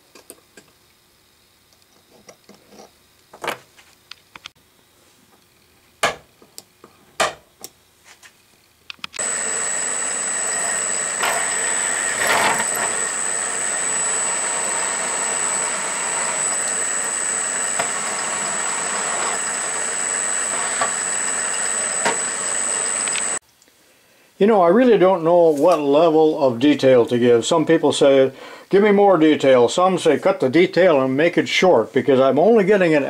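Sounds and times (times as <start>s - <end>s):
drill press whining: 9.2s - 23.4s.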